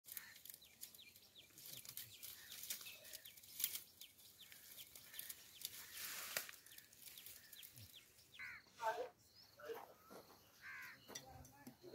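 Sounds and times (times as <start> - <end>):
dry stalks crackling and rustling: 0.0 - 8.6
birds chirping: 0.1 - 11.9.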